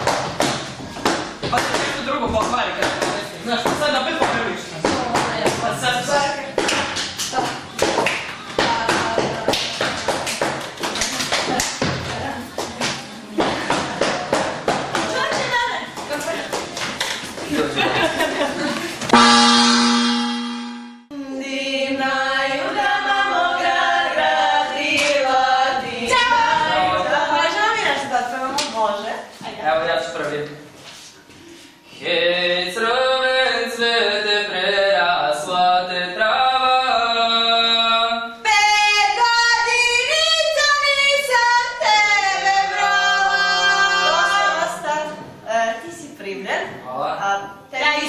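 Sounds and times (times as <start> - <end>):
girls singing in harmony: 21.1 - 27.6, 38.4 - 45.2.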